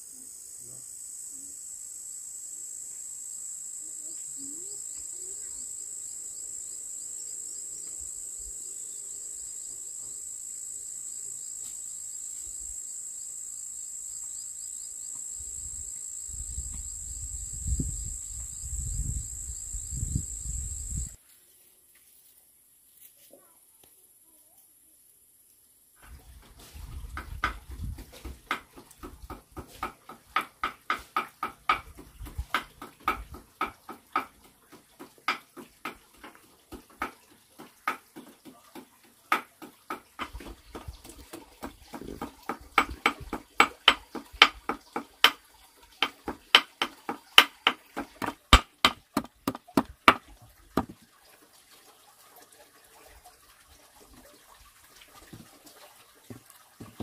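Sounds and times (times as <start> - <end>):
sharp knocks and clatters: 27.0 - 45.4, 46.0 - 51.0, 56.3 - 57.0.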